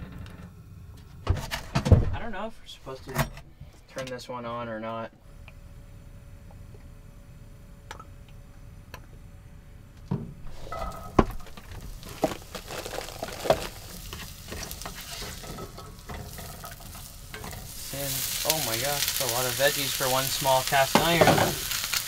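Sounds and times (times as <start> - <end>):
knocks and scrapes of stirring: 10.5 - 17.7
vegetables sizzling in skillet: 10.5 - 22.0.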